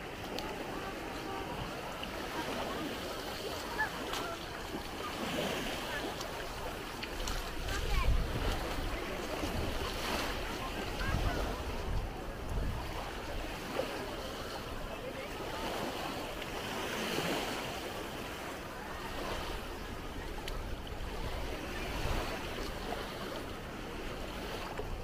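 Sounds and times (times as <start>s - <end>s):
faint voices: 0.0s - 25.0s
small waves lapping: 0.0s - 25.0s
wind on microphone: 3.7s - 13.6s.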